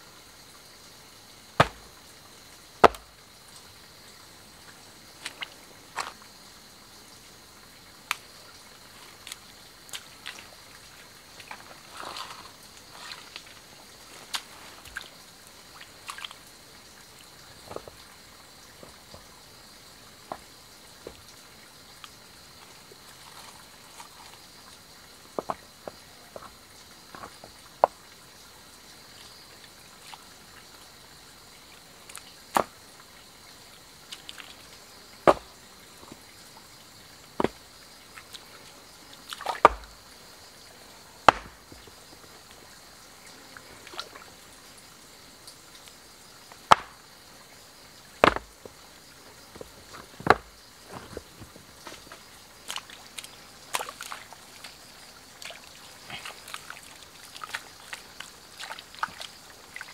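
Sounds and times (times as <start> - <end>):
stones clacking together: 1.6 - 1.9, 2.8 - 3.1, 39.6 - 39.9, 41.3 - 41.8, 46.7 - 47.0, 48.2 - 48.8, 49.5 - 52.1
splashes in muddy water: 9.1 - 16.4, 39.2 - 40.0, 52.6 - 59.9.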